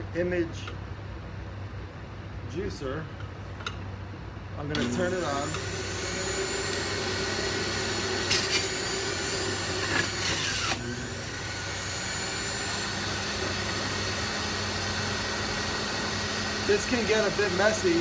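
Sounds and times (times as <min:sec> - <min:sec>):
juicer grinding fruit: 0:04.8 - 0:18.0
juicer motor running: 0:04.8 - 0:18.0.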